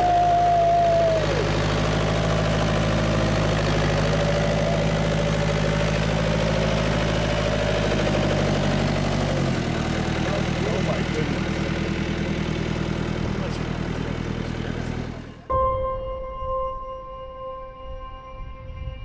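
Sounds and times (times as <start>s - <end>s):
vehicle engine idling: 0.0s - 15.6s.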